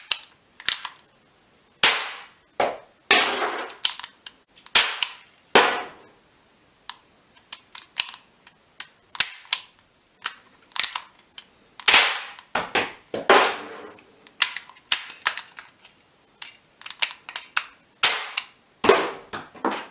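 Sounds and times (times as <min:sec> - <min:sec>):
gun clicks: 0:00.0 - 0:01.0, 0:06.9 - 0:12.5, 0:16.4 - 0:18.5
cap gun shots: 0:01.8 - 0:03.6, 0:04.8 - 0:06.0, 0:11.9 - 0:13.7.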